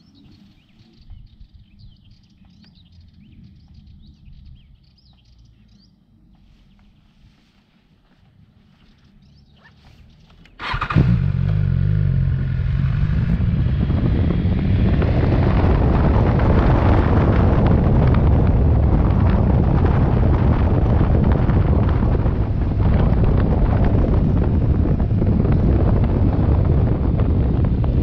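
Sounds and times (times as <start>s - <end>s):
wind noise: 0.0s - 2.5s, 10.6s - 28.0s
motorcycle engine running: 10.6s - 28.0s.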